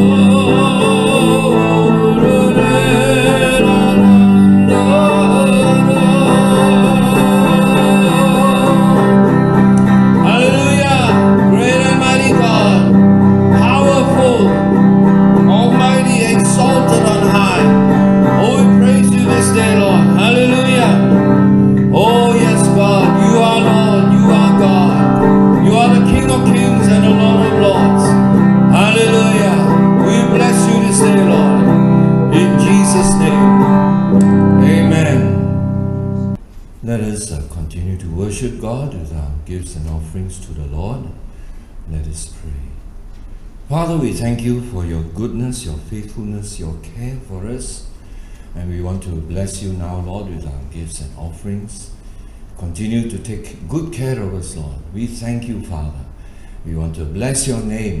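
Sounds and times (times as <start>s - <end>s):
man singing: 0.0s - 35.6s
electric guitar: 0.0s - 36.7s.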